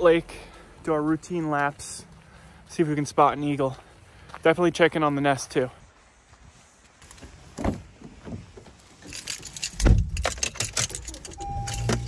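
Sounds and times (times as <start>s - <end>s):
car keys jangling: 9.0s - 12.0s
car door shutting: 11.4s - 12.0s
car electronic warning beep: 11.4s - 12.0s.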